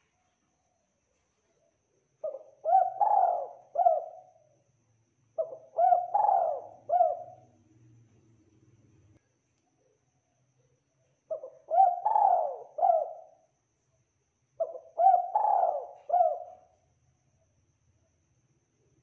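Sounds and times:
dove cooing: 0:02.2 - 0:04.4, 0:05.4 - 0:07.6, 0:11.3 - 0:13.4, 0:14.6 - 0:16.7.

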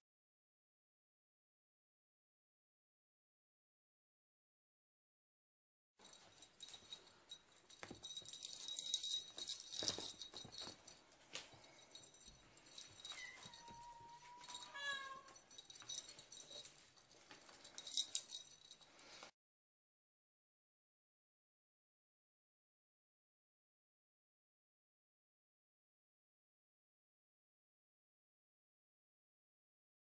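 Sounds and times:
kitten meowing: 0:13.2 - 0:15.4.

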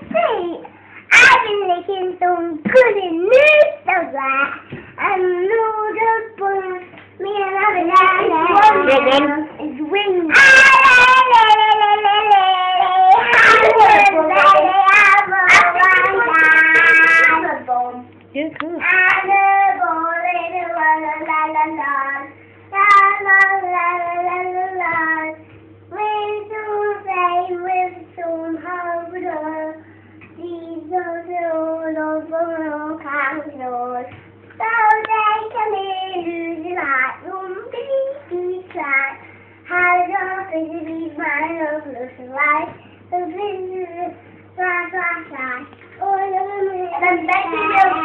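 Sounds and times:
girl singing unaccompanied: 0:00.0 - 0:48.0.

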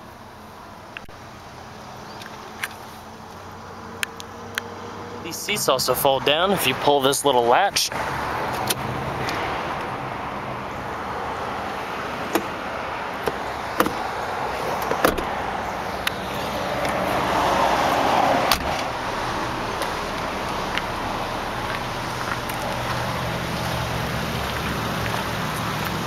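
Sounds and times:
seat latch clicks and knocks: 0:13.2 - 0:14.0, 0:14.8 - 0:15.3.

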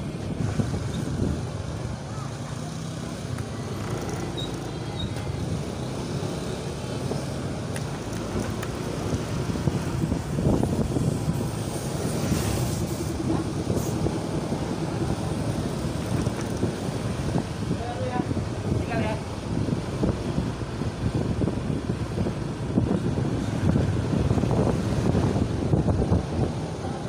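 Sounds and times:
scooter engines humming: 0:00.0 - 0:12.3
traffic noise: 0:00.0 - 0:27.0.

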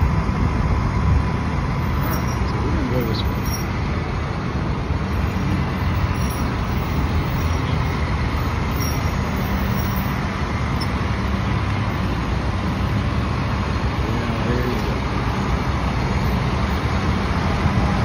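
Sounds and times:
road traffic rushing: 0:00.0 - 0:18.0
truck engine running: 0:00.0 - 0:18.0.

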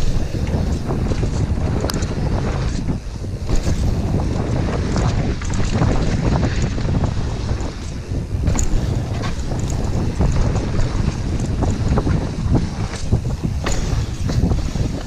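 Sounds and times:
wind buffeting microphone: 0:00.0 - 0:15.0
mountain bike rattling knocks: 0:03.4 - 0:15.0.

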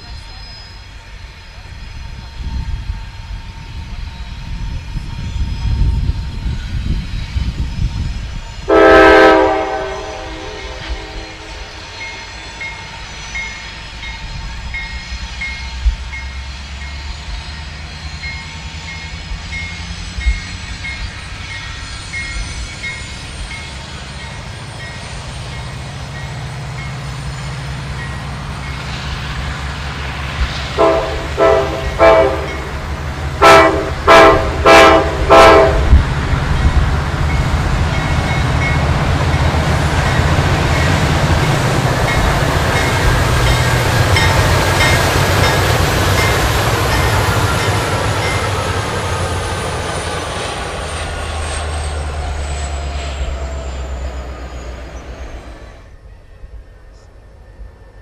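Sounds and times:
locomotive air horn: 0:08.7 - 0:11.9, 0:30.8 - 0:36.0
locomotive diesel engines rumbling: 0:17.4 - 0:55.8.

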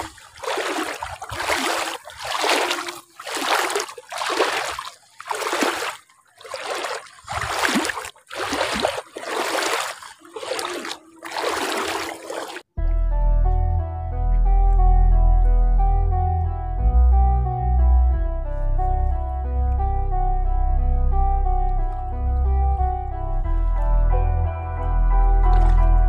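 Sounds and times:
wading through shallow water: 0:00.0 - 0:12.7, 0:25.0 - 0:26.0.

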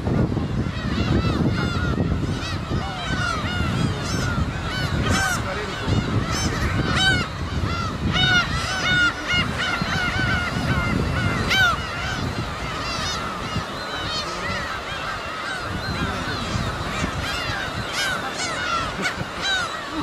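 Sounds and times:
gulls calling: 0:00.0 - 0:20.0.

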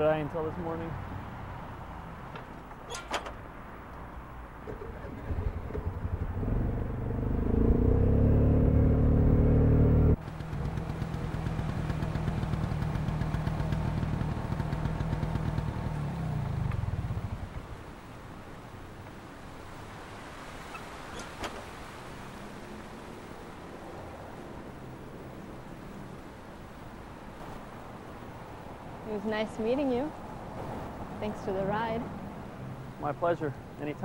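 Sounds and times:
scooter engine revving: 0:04.7 - 0:17.4.

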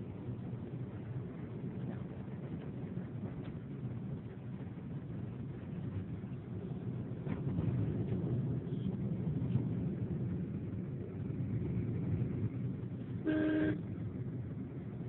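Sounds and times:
vehicle rumble from inside: 0:00.0 - 0:15.0
vehicle horn toot: 0:13.2 - 0:13.8.

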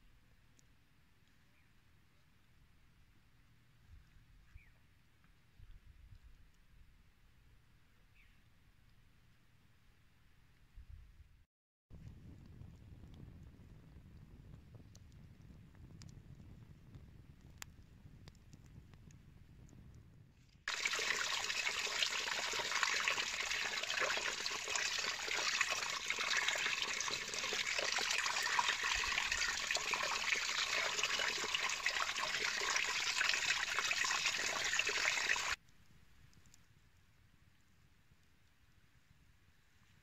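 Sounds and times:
water running into a metal pot: 0:20.7 - 0:35.6
water splashing over rocks: 0:20.7 - 0:35.6.

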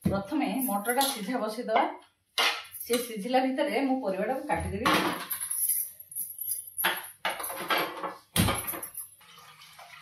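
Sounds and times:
water pouring into pot: 0:09.1 - 0:10.0.

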